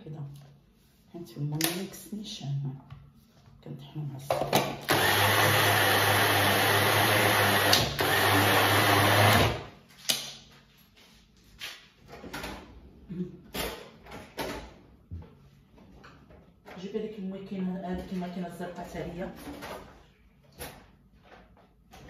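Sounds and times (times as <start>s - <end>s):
food processor motor grinding: 4.8s - 9.7s.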